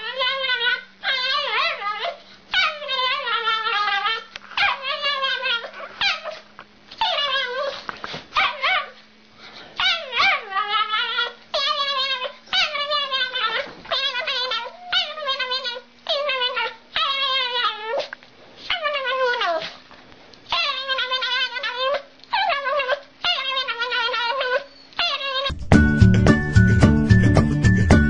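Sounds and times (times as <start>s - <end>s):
small dog barking and yowling: 0.0s - 6.4s, 7.0s - 9.0s, 9.8s - 18.1s, 20.5s - 25.6s.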